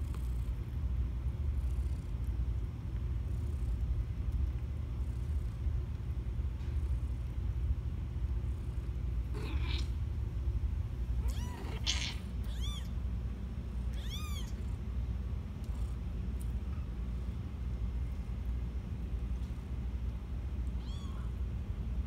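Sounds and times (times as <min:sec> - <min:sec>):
steady low hum: 0:00.0 - 0:22.0
kitten mewing: 0:09.3 - 0:10.0, 0:11.2 - 0:12.9, 0:13.9 - 0:14.6, 0:20.8 - 0:21.3.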